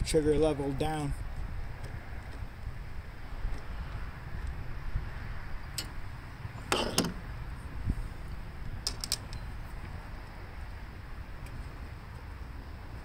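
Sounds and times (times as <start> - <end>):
plastic housing creaking: 6.7 - 7.2, 8.8 - 9.4.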